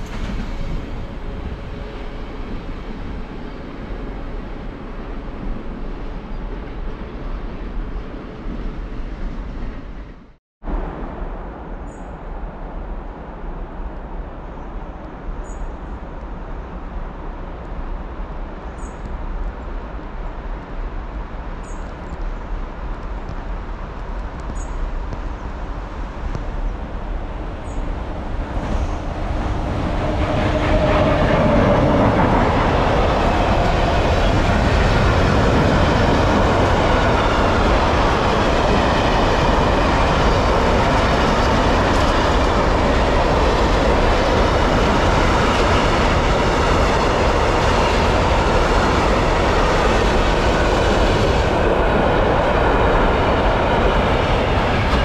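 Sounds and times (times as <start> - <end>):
train wheels on rails: 0.0 - 10.4, 21.8 - 55.0.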